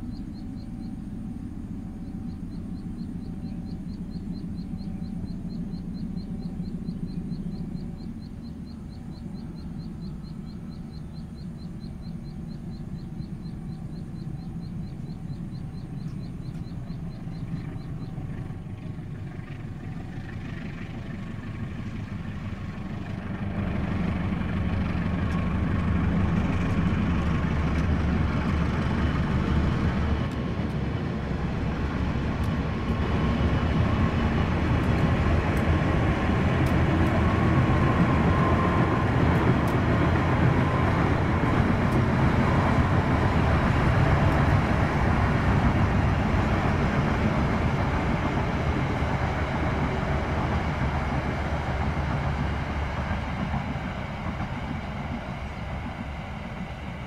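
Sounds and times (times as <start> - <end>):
diesel locomotive engine running low: 0.0 - 57.0
train wheels on rails: 6.6 - 57.0
faint high whine: 25.7 - 57.0.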